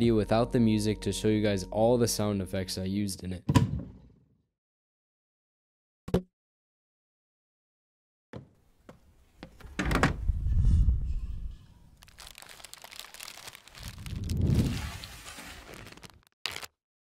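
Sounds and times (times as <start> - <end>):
plastic bag rustling and crinkling: 11.9 - 16.7.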